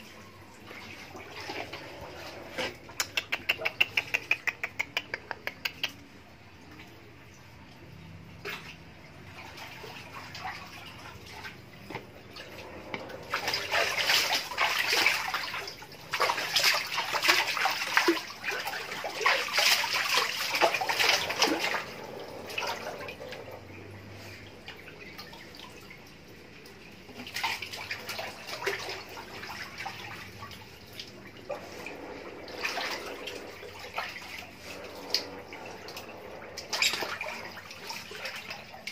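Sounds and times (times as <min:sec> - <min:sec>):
otter splashing in water: 0:08.4 - 0:24.0, 0:27.1 - 0:38.9.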